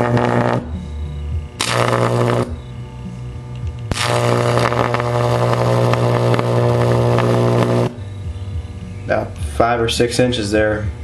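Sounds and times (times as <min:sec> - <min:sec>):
electric arc buzzing and crackling: 0:00.0 - 0:00.8, 0:01.5 - 0:02.8, 0:03.7 - 0:08.1
transformer humming: 0:00.0 - 0:11.0.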